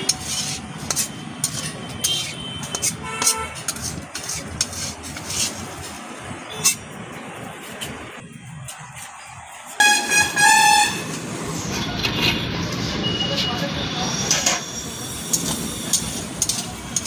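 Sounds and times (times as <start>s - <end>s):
spatula scraping metal pan: 0.0s - 5.9s
vehicle horn toot: 9.8s - 11.1s.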